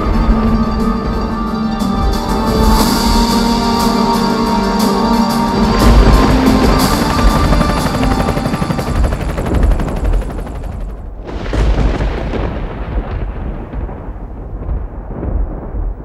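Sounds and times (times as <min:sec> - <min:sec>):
loud backing music: 0:00.0 - 0:09.4
deep boom with low rumble: 0:11.2 - 0:16.0.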